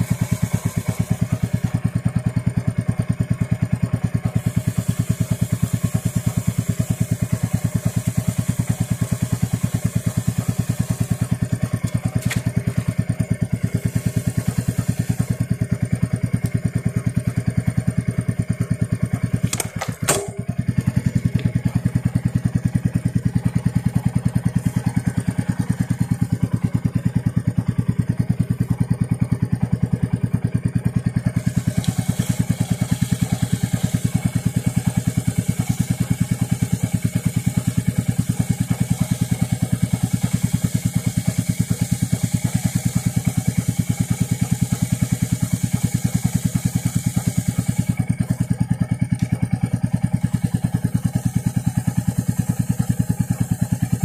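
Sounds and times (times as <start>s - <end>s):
motorcycle engine idling: 0.0s - 54.0s
clicks: 19.4s - 20.5s.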